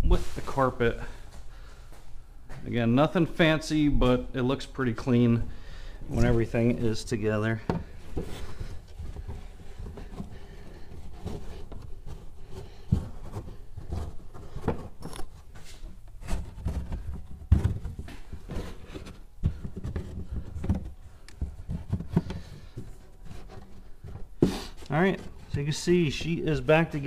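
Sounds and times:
carpet rustling: 0.1s - 27.0s.

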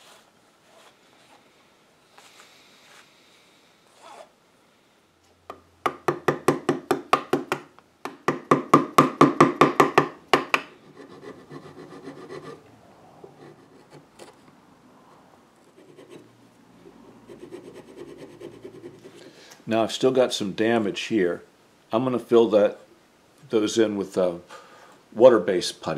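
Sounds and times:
gouge cutting wood: 10.8s - 12.6s
tool scraping on wood: 10.8s - 12.6s, 13.2s - 14.6s.

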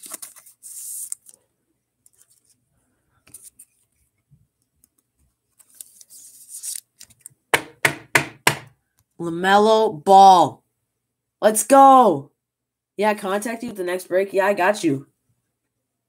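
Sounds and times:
card scraping into plastic sleeve: 0.0s - 1.4s, 5.6s - 7.3s.

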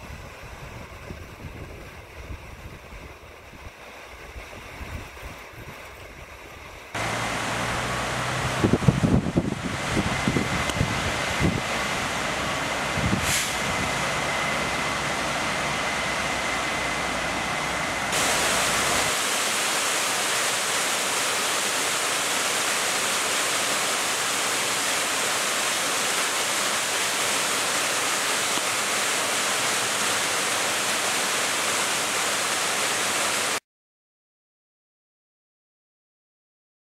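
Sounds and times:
river pouring over rocks: 7.0s - 13.0s, 13.9s - 33.6s
waterfall splashing onto rock: 18.1s - 33.6s.

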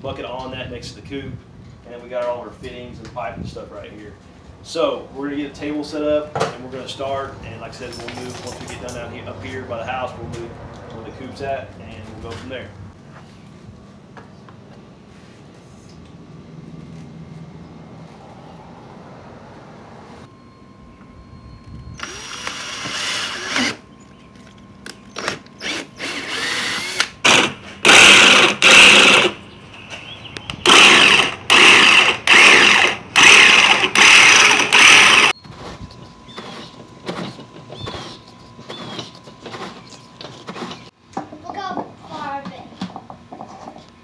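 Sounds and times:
cordless drill boring plastic: 22.0s - 23.8s, 25.1s - 29.4s, 30.6s - 35.3s
jigsaw cutting plastic: 25.2s - 29.4s, 30.6s - 35.3s.

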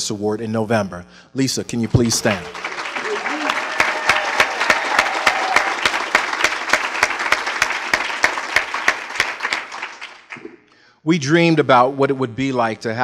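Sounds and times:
audience applauding: 1.7s - 10.6s
loud close claps: 1.9s - 10.7s.

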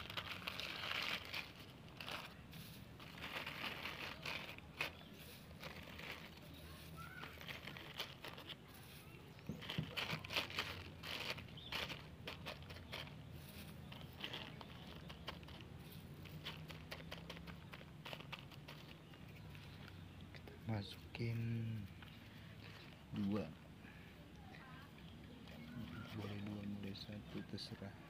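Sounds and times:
plastic bags crinkling: 0.0s - 20.1s
potting mix crackling: 0.0s - 28.0s.

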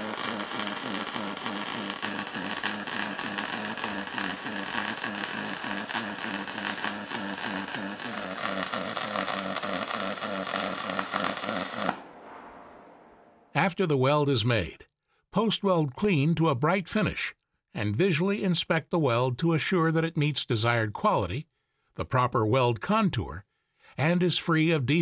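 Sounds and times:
welding arc buzzing hiss: 0.0s - 12.8s.

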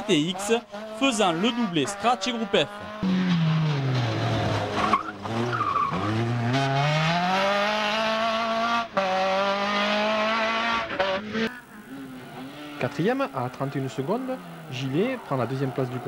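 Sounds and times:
rally car engine revving: 0.0s - 16.0s
tyre squeal: 4.7s - 6.2s.

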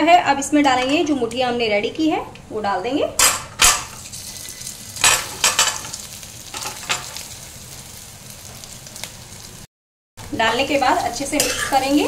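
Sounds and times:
food sizzling in hot oil: 3.4s - 12.0s.

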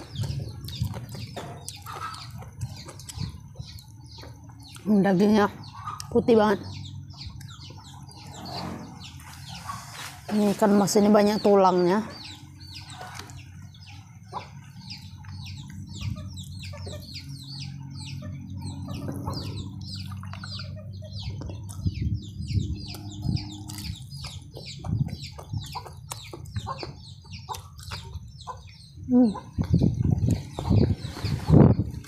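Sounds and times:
chickens clucking and peeping: 0.0s - 32.0s
low steady hum: 0.0s - 32.0s
person chewing food: 22.9s - 26.7s, 27.5s - 28.2s.

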